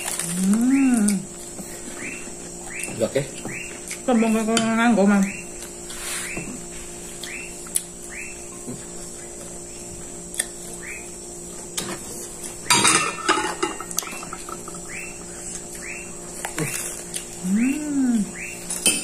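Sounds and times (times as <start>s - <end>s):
clatter of dishes: 12.7s - 14.8s.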